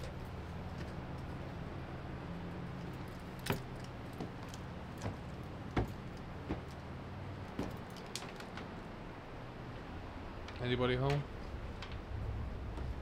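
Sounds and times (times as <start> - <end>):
light sharp clicks and knocks: 2.8 - 8.8, 10.4 - 12.1.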